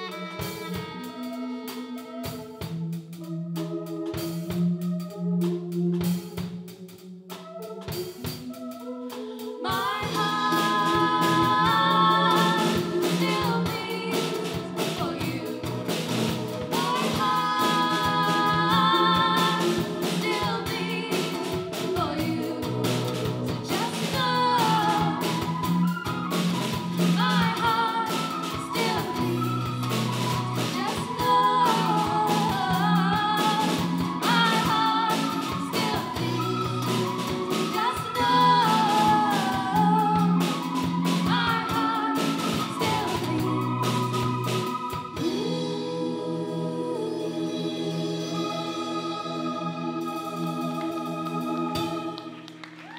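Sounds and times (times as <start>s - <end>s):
synthesizer keyboard: 0.0s - 52.5s
drum kit: 0.0s - 52.9s
woman singing: 9.1s - 52.9s.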